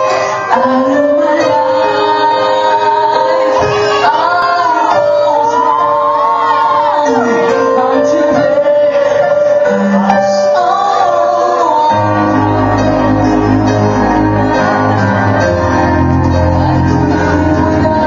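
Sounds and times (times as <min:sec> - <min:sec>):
live band playing: 0:00.0 - 0:18.0
person singing into microphone: 0:00.0 - 0:18.0.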